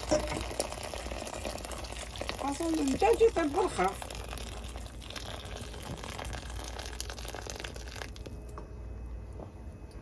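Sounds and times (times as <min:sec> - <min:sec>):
hot water pouring into a pan: 0:00.0 - 0:08.3.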